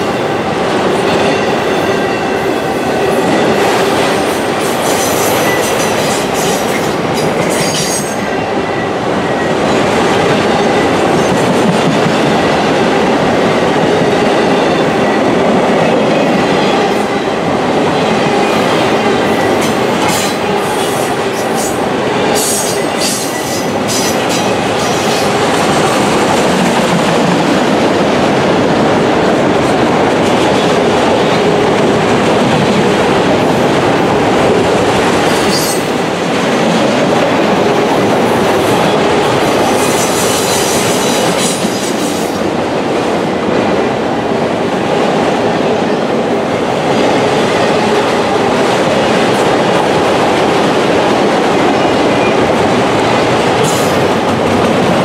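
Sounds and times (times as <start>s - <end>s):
steel wheels rumbling on rails: 0.0s - 55.0s.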